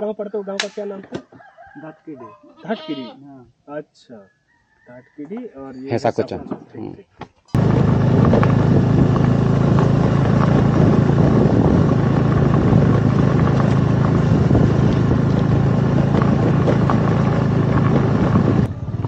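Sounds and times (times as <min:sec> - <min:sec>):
motor scooter engine hum: 0:07.6 - 0:19.0
road noise: 0:07.6 - 0:19.0
wind noise: 0:07.6 - 0:19.0.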